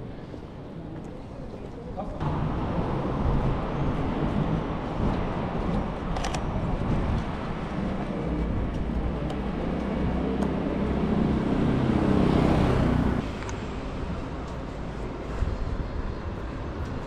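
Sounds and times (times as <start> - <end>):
city street traffic: 0.0 - 17.0
vehicle passing close: 8.2 - 13.3.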